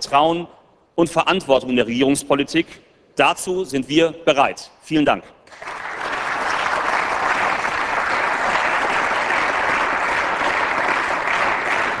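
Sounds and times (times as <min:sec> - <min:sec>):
crowd applauding: 0:05.5 - 0:12.0.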